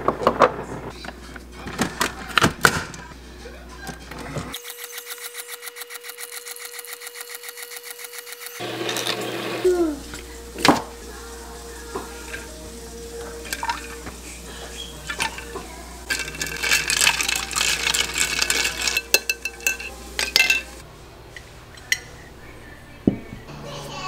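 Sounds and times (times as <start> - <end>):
ice cubes clinking in glass jar: 15.0 - 20.8.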